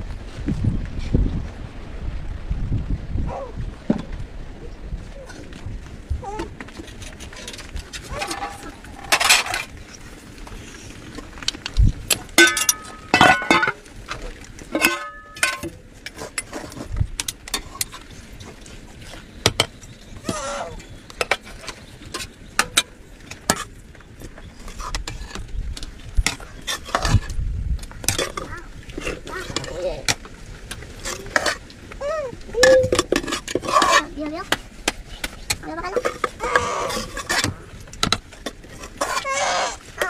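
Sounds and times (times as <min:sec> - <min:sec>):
ladles clinking on pots: 0:12.4 - 0:13.8, 0:14.7 - 0:15.7.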